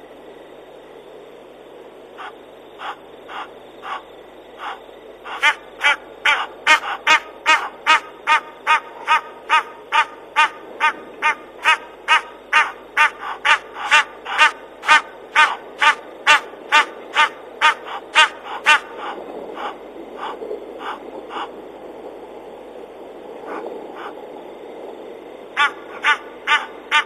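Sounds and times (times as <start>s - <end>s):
animal calling a short note: 25.6s - 27.0s.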